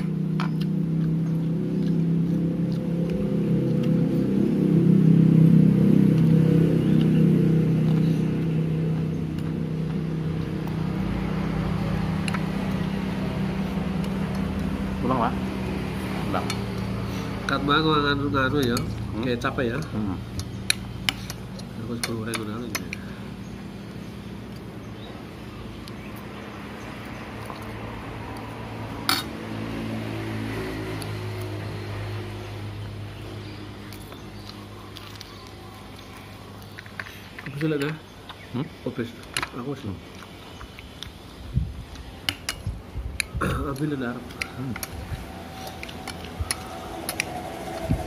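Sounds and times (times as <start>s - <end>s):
vehicle engine running: 0.0s - 37.7s.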